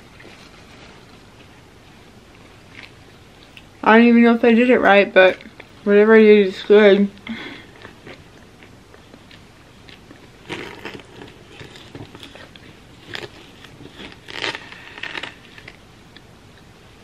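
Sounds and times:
knife crunching through chocolate bar: 9.2s - 15.8s.

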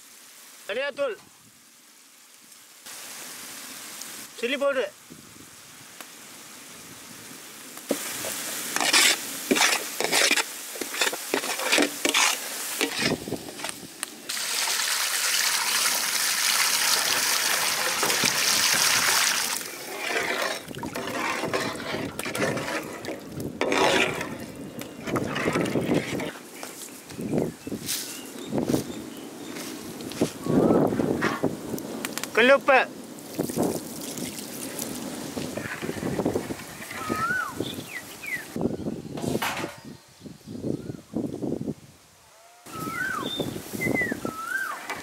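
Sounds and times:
steady hiss: 0.0s - 20.8s
ladle scraping pot: 7.9s - 13.7s, 17.8s - 18.3s, 19.6s - 26.4s, 35.6s - 37.3s, 44.6s - 45.0s.

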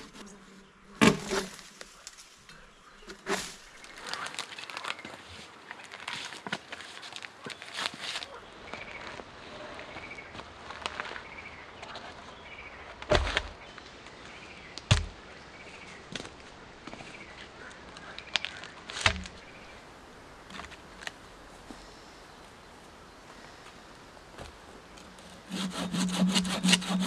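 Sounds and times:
heavy wooden log thuds: 1.0s - 1.5s, 14.9s - 15.2s.

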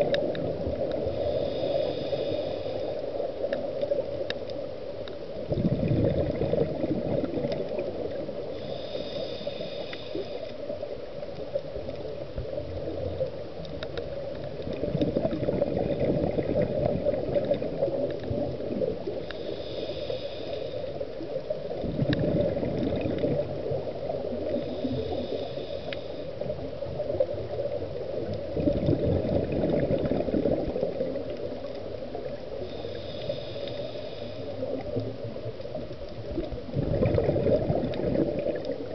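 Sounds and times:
underwater wash: 0.0s - 38.9s
hissing regulator inhale: 0.8s - 3.4s, 8.4s - 10.8s, 19.0s - 21.4s, 24.3s - 26.8s, 32.5s - 35.1s
bubbling exhaust: 5.5s - 7.6s, 14.7s - 17.8s, 28.4s - 31.0s, 36.7s - 38.8s.

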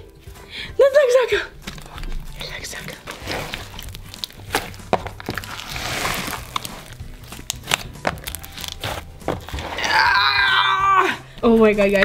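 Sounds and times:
slime squelching by hand: 1.5s - 10.8s.

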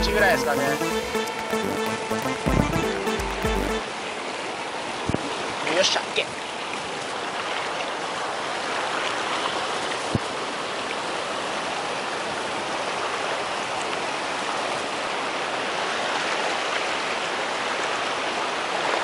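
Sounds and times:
short low thump: 2.5s - 2.9s.

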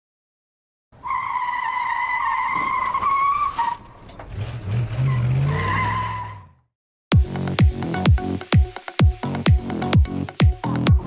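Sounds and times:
tyre skid squeal: 1.0s - 6.6s
car engine revving: 4.2s - 6.5s.

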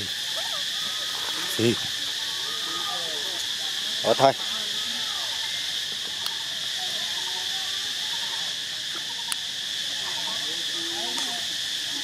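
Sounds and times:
faint wavering calls: 0.0s - 12.0s
insect chorus drone: 0.0s - 12.0s.

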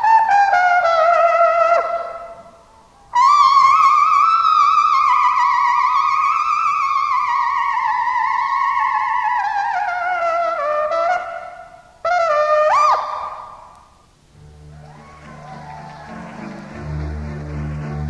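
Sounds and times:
trumpet long high note: 14.4s - 18.0s.

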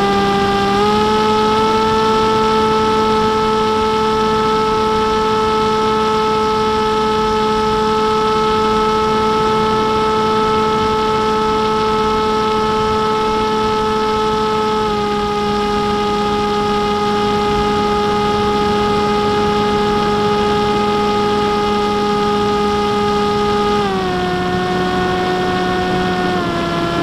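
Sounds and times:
electric motor and propeller whine: 0.0s - 27.0s.

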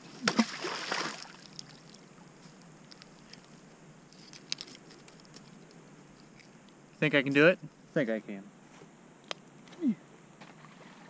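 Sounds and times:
object skipping across water: 0.2s - 1.9s.

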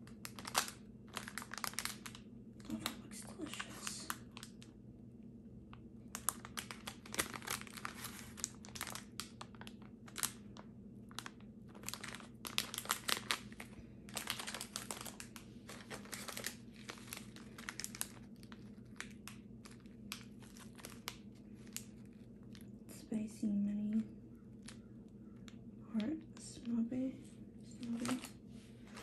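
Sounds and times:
plastic wrappers crinkling: 0.0s - 4.8s, 5.7s - 22.9s, 23.8s - 26.8s, 27.6s - 29.0s.

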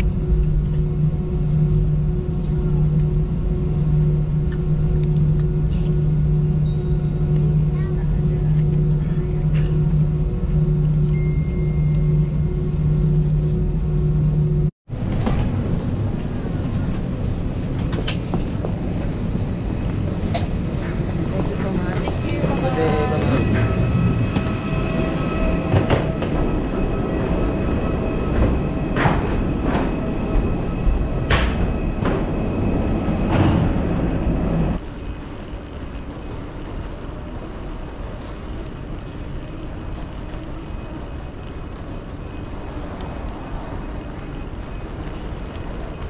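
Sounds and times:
faint steady whine: 0.0s - 14.7s
loud steady rumbling: 0.0s - 46.0s
terminal hall hum: 0.0s - 46.0s.

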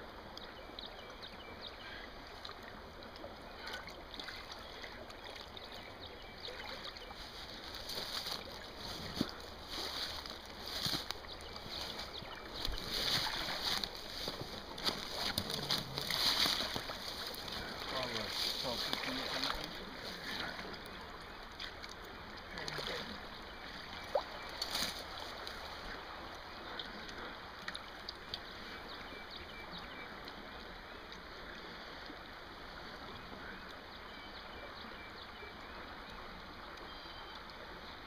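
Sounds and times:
creek water running: 0.0s - 38.0s
splashes and knocks wading: 1.9s - 29.0s.

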